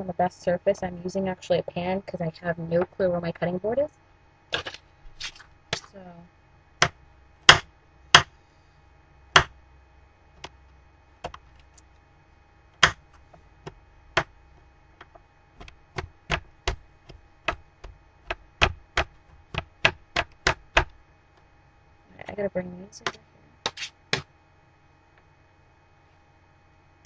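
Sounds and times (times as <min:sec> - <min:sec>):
knife chopping on metal pan: 0:06.8 - 0:08.3, 0:12.8 - 0:13.0.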